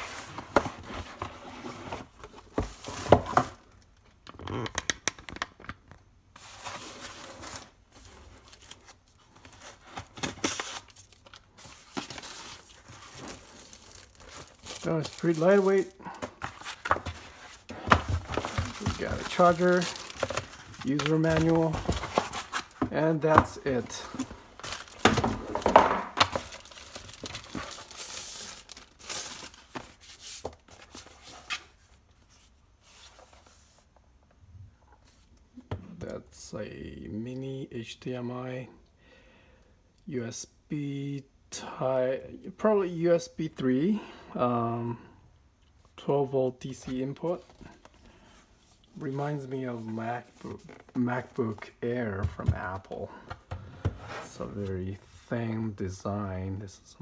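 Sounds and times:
plastic sleeve rustling and crinkling: 6.4 - 31.6.

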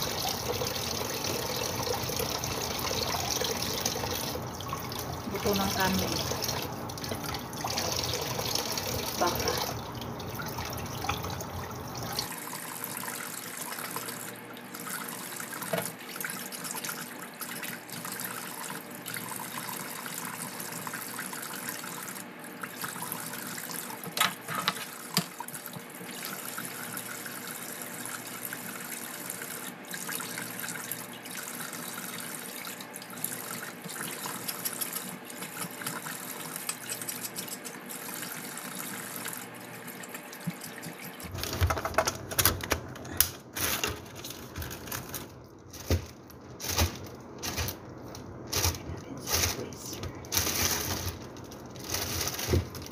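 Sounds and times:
food rinsed in metal colander: 0.0 - 12.4, 40.1 - 52.9.

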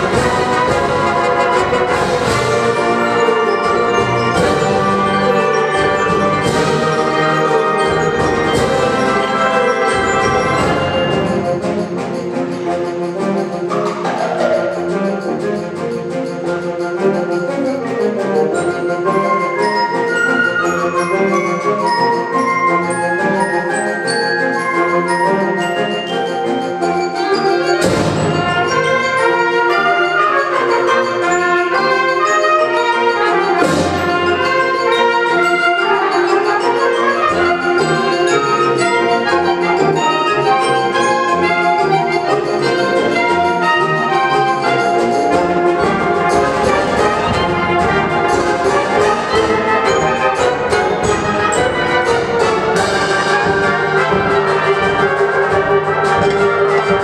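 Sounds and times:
percussion crashes: 0.0 - 17.2, 27.8 - 29.2, 33.5 - 34.9, 44.9 - 57.0
concert band playing: 0.0 - 57.0.

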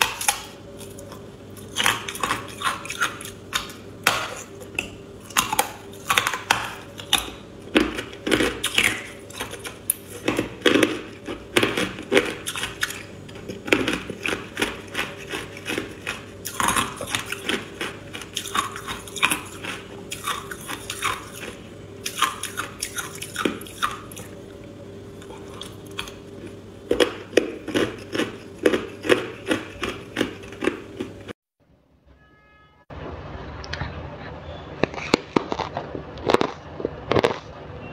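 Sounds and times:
ice being crunched by teeth: 34.8 - 37.5.

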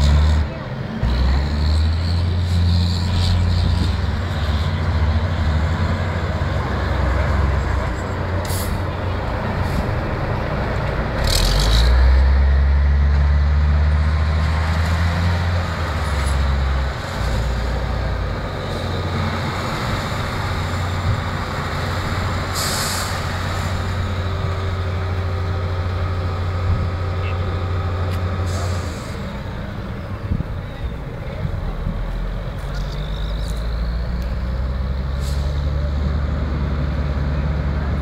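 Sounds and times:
diesel truck engine running: 0.0 - 38.0.

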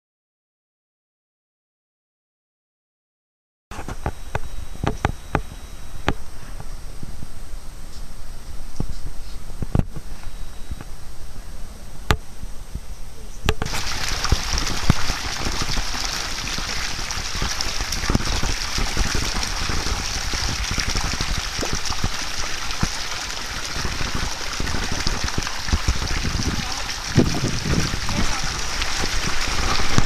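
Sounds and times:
water rushing and splashing: 13.6 - 30.0.

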